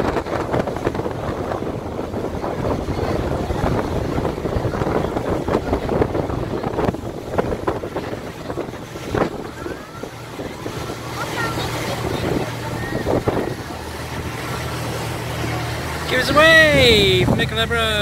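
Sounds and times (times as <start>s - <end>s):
boat engine rumble: 0.0s - 18.0s
water rushing past hull: 0.0s - 18.0s
wind buffeting microphone: 0.0s - 18.0s.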